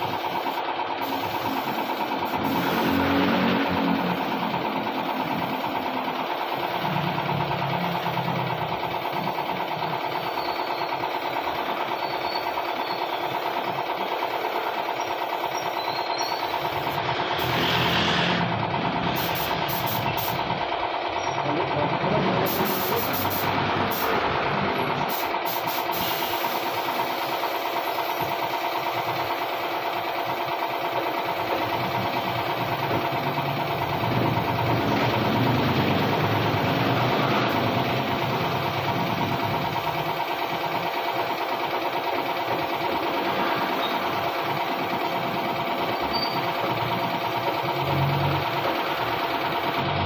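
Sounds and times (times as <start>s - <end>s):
spray gun air hiss: 0.0s - 3.1s, 16.4s - 18.4s, 19.1s - 20.4s, 22.4s - 24.2s, 25.0s - 31.4s
air compressor running: 0.0s - 50.0s.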